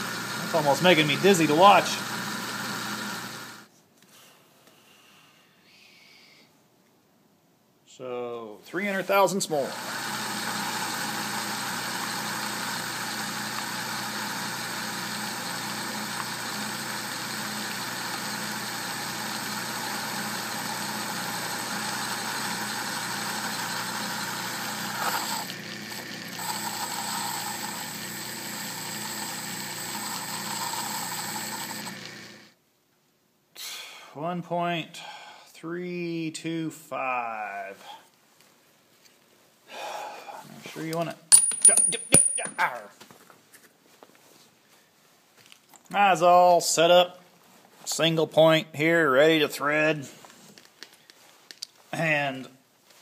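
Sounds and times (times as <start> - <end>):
metal lathe running: 0.0 - 3.6, 9.7 - 32.3.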